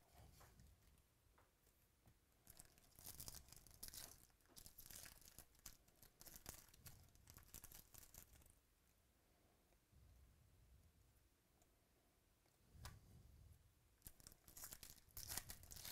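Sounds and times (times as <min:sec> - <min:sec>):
foil wrapper crinkling and tearing: 0:02.4 - 0:08.5, 0:14.0 - 0:15.9.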